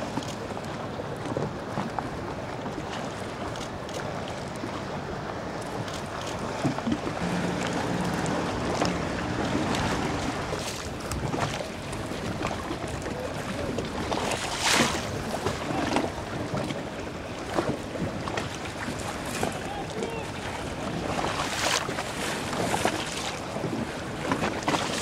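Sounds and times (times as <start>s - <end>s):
waves slapping and splashing: 0.0s - 25.0s
low steady hum: 7.2s - 11.5s.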